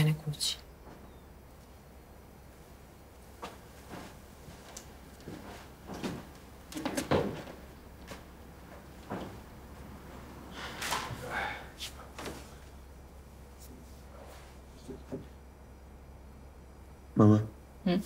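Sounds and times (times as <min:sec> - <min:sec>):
footsteps on floor: 0:03.4 - 0:09.9.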